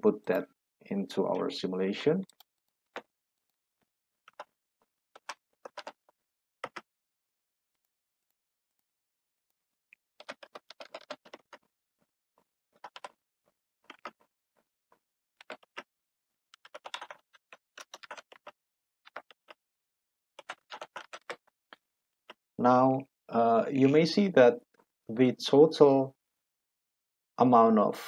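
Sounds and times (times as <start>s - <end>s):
keyboard typing: 4.3s - 4.5s, 5.2s - 6.9s, 10.2s - 11.7s, 12.8s - 13.2s, 13.8s - 14.3s, 15.4s - 15.9s, 16.5s - 19.6s, 20.4s - 21.5s.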